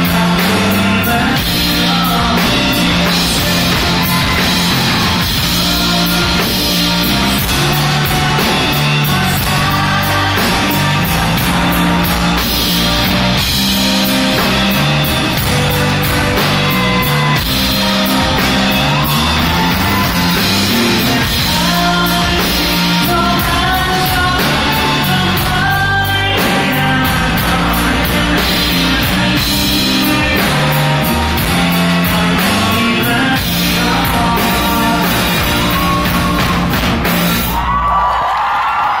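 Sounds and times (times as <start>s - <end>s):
rock band playing live: 0.0s - 39.0s
audience whooping and cheering: 2.9s - 25.3s, 34.2s - 39.0s.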